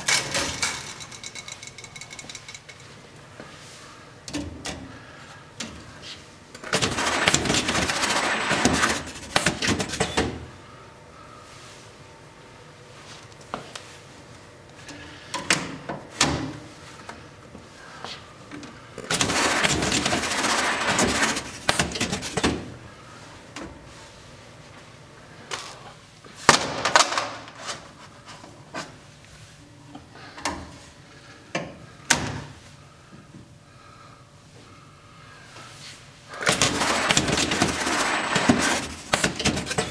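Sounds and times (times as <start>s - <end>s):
banding machine running: 6.6s - 10.2s, 19.0s - 22.4s, 36.3s - 39.9s.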